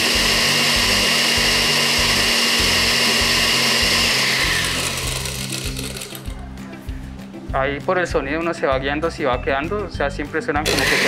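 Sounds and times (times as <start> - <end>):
blender crushing ice: 0.0 - 6.3, 10.7 - 11.0.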